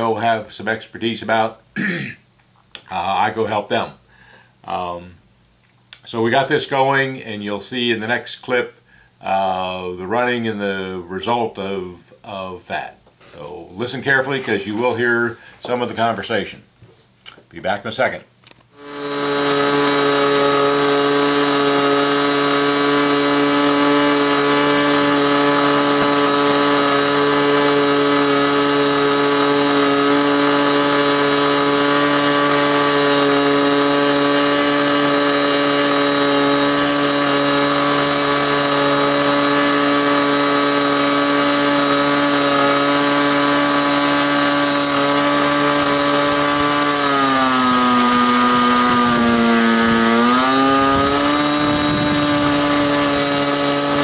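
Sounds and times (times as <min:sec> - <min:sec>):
model airplane engine running: 0:18.8 - 0:54.0.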